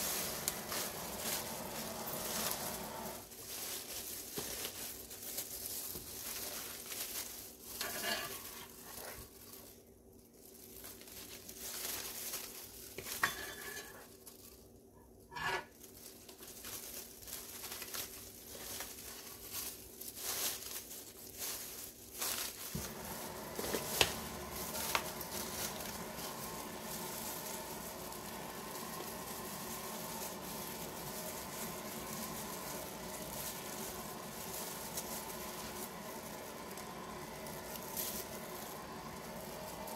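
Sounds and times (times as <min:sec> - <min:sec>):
steady hiss: 0:00.0 - 0:04.8, 0:21.3 - 0:39.9
plastic gloves and foil crinkling: 0:00.0 - 0:39.9.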